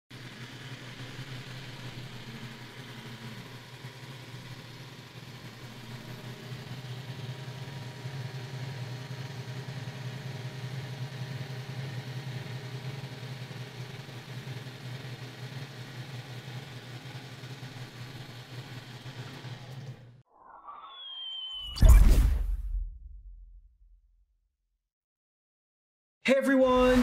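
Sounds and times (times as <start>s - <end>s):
robot vacuum motor hum: 0.1s - 20.1s.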